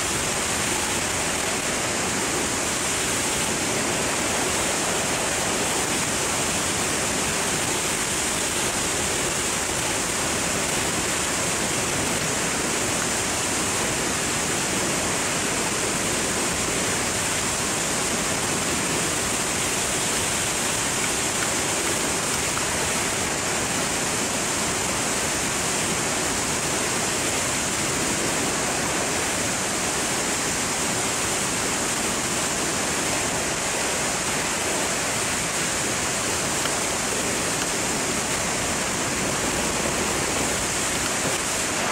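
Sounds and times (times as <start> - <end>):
freefall wind rushing over microphone: 0.0 - 41.9.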